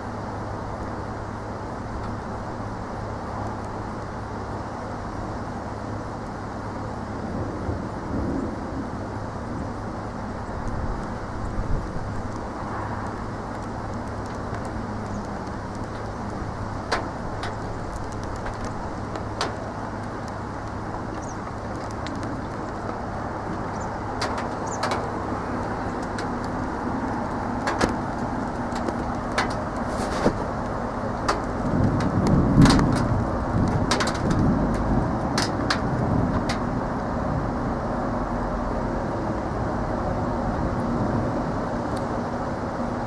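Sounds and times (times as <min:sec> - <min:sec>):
steady outdoor rumble: 0:00.0 - 0:43.0.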